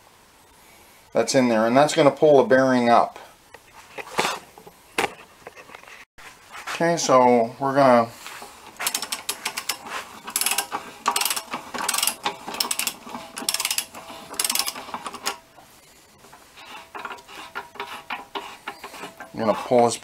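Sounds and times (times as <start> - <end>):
ratchet wrench clicking: 8.8 - 15.4.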